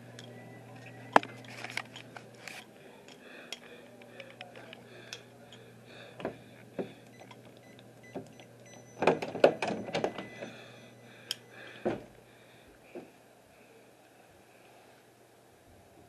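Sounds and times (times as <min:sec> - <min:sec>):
faint steady hum: 0:00.0 - 0:16.0
handling knocks and clicks: 0:06.2 - 0:10.4.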